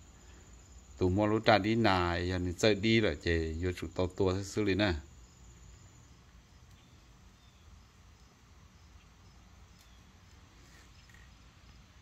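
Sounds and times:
faint high chirp: 6.6 - 7.8.

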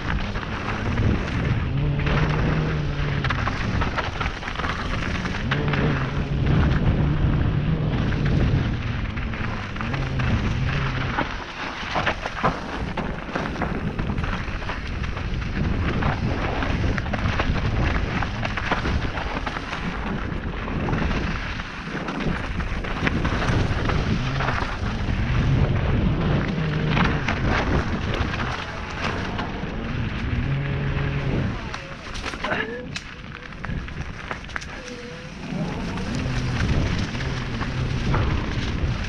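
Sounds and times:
bike clicks and rattles: 0.0 - 39.0
tyres crunching over gravel: 0.0 - 39.0
wind rumbling on microphone: 0.0 - 39.0.

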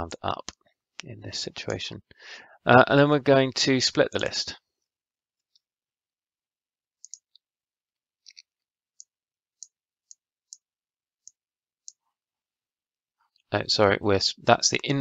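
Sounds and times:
computer mouse clicks: 7.0 - 7.4.

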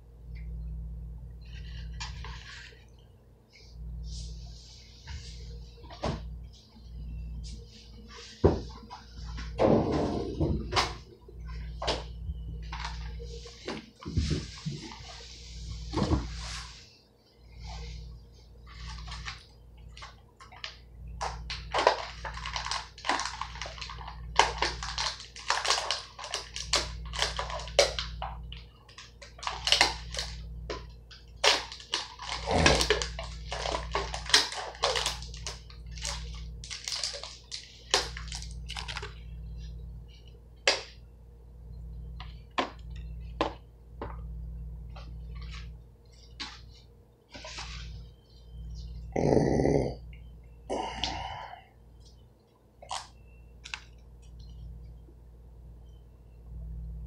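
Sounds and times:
steady low hum: 0.0 - 57.0
plastic packaging crinkling: 18.7 - 39.6.

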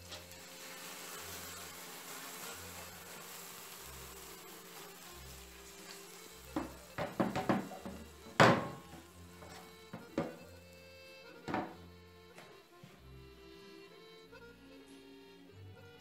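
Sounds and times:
oil sizzling in a pan: 0.0 - 12.1
faint background music: 0.0 - 16.0
pan and bowls clattering on wood: 6.6 - 8.8, 9.4 - 10.4, 11.5 - 11.8.

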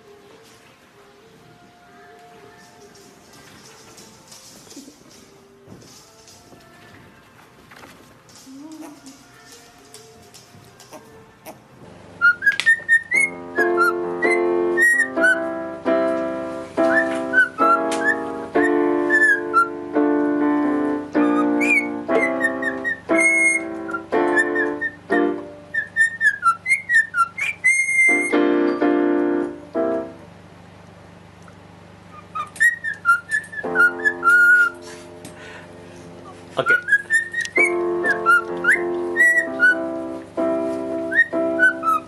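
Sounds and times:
piano chords: 0.0 - 42.0
cockatiel whistling: 12.2 - 15.5, 16.8 - 19.8, 21.2 - 28.4, 32.1 - 34.8, 36.6 - 39.9, 41.0 - 42.0.

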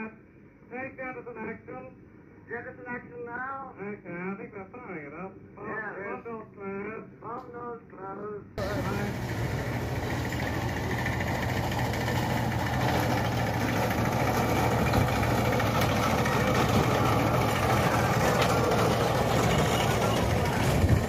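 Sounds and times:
monorail engine running: 8.6 - 21.0.

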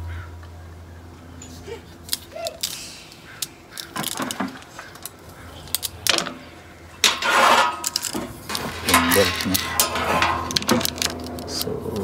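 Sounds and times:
metallic clicks: 1.4 - 6.4
saw chain rattling and clinking: 7.0 - 11.7.

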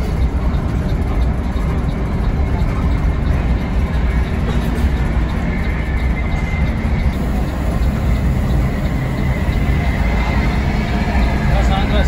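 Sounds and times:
bus engine drone: 0.0 - 12.0
road noise: 0.0 - 12.0.

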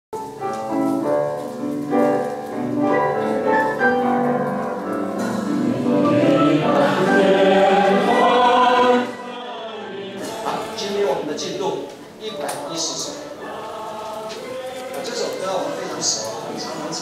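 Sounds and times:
choir singing a hymn: 5.2 - 11.7, 12.3 - 17.0.

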